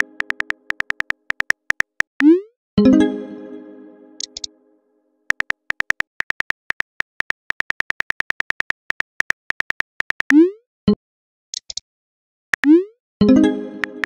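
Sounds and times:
phone keyboard typing clicks: 0.0 - 2.2, 4.2 - 4.5, 5.3 - 10.4.

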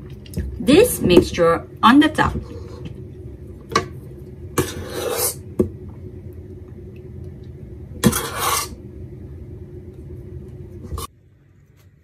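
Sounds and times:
steady low hum: 0.0 - 12.0
spoon scraping metal bowl: 4.6 - 5.4, 8.0 - 8.8.

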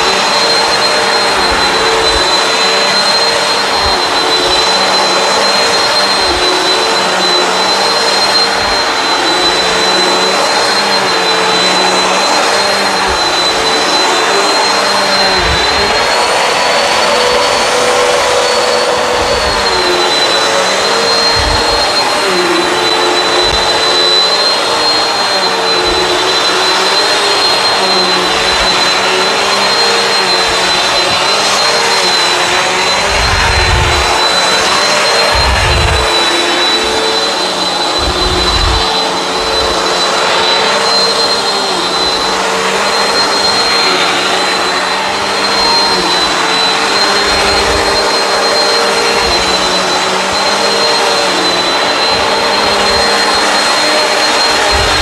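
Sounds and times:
vacuum cleaner running: 0.0 - 55.0.

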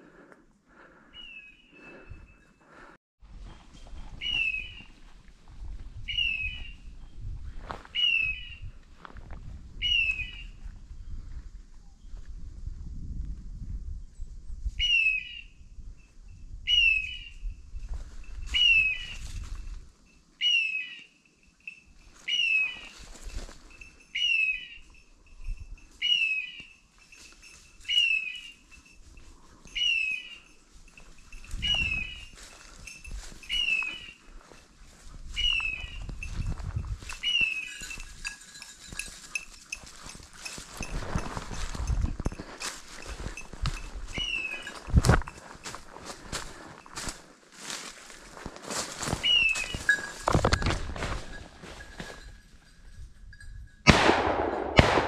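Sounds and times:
footsteps through dry leaves: 31.6 - 38.2, 38.8 - 52.2.

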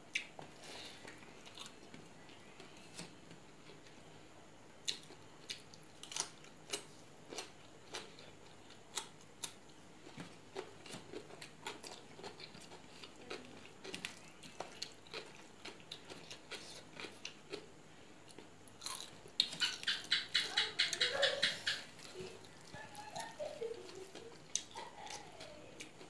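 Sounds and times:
soft chewing: 0.1 - 26.0.

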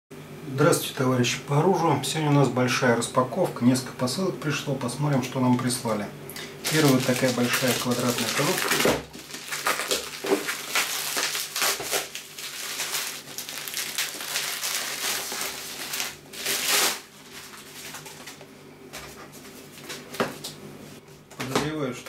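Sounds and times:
plastic mailer bag tearing: 6.6 - 18.4.

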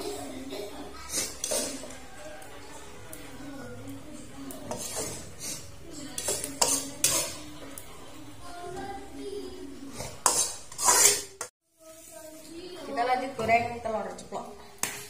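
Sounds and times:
metal spatula scraping a wok: 0.0 - 8.6, 9.7 - 12.5.

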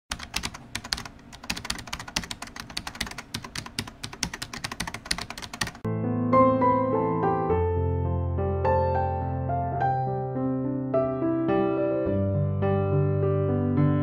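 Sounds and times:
rapid typing-like clicks: 0.1 - 5.9
soft piano music: 5.8 - 14.0.

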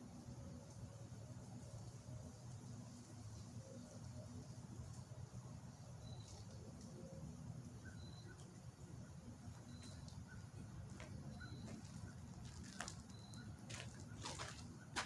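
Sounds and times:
bird chirping: 5.9 - 15.0
footsteps on gravel: 9.8 - 15.0.

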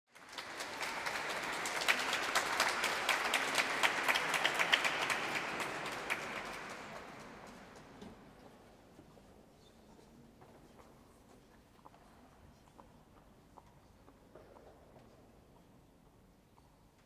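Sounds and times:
audience applause: 0.1 - 8.0.

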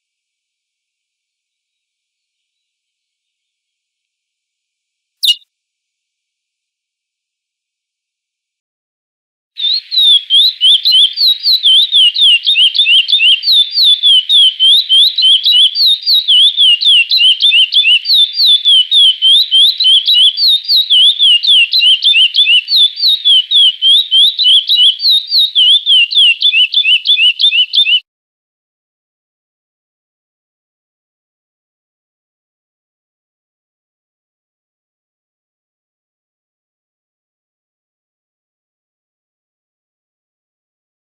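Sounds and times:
finch singing whistled notes: 5.2 - 5.4, 9.6 - 28.0.

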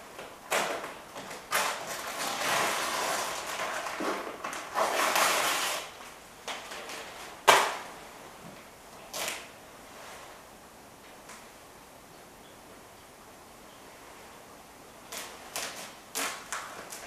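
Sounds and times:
tape peeling rasping rips: 0.5 - 7.8, 9.0 - 9.5, 15.1 - 17.0.

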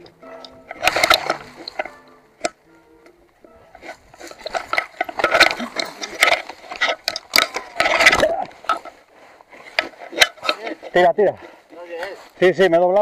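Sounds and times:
wheels knocking on roots and rocks: 0.0 - 2.6, 3.4 - 11.0
bike frame rattle: 0.2 - 2.5, 3.6 - 9.0, 9.6 - 11.1.

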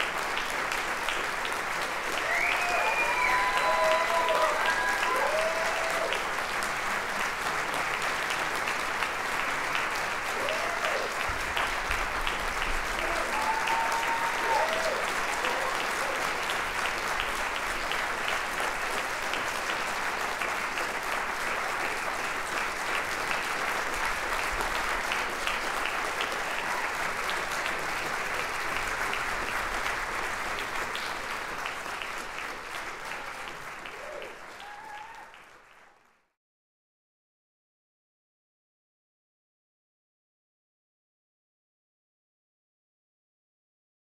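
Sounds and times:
audience applauding: 0.0 - 36.3
audience cheer: 2.0 - 6.4, 10.3 - 11.4, 12.8 - 16.6, 26.2 - 27.3, 33.1 - 35.6.

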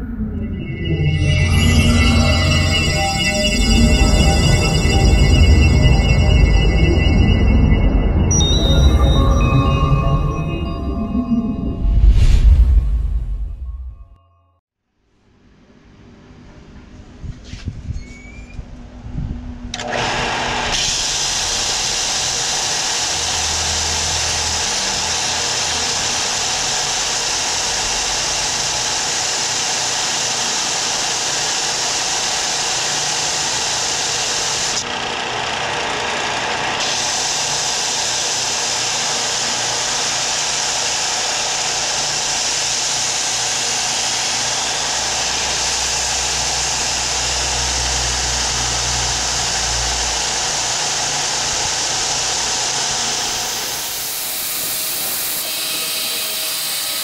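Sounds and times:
power tool on wood: 19.7 - 57.0.

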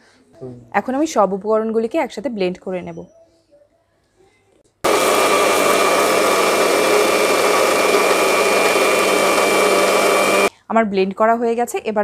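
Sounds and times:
mixer grinder motor whining: 4.9 - 10.5.

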